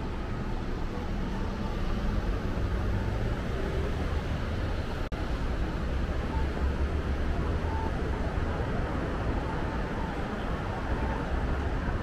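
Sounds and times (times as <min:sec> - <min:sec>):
city traffic rumble: 0:00.0 - 0:12.0.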